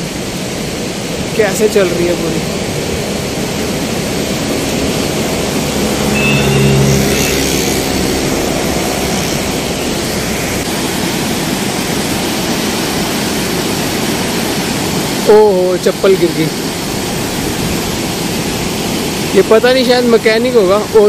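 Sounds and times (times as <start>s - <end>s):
river rushing: 0.0s - 21.0s
brief hum: 5.5s - 9.6s.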